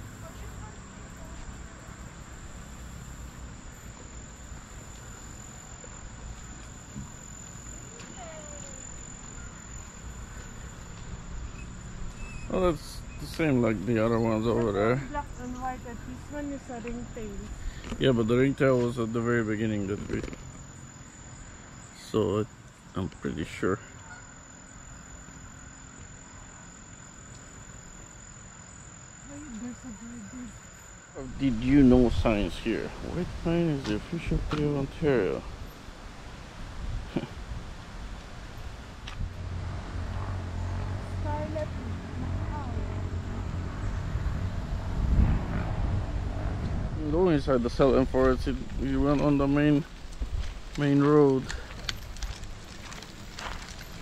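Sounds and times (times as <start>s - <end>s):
crickets trilling: 0.0s - 54.0s
low rumble: 31.1s - 35.6s, 38.7s - 50.8s.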